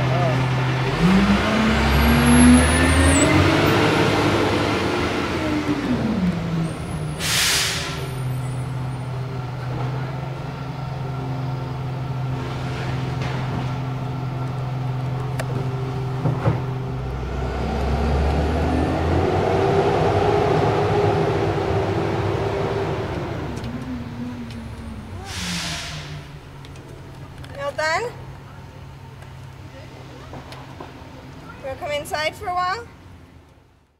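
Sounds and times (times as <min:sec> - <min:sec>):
truck diesel engine running: 0:00.0 - 0:29.1
air brakes hissing: 0:07.0 - 0:08.7, 0:24.6 - 0:26.6.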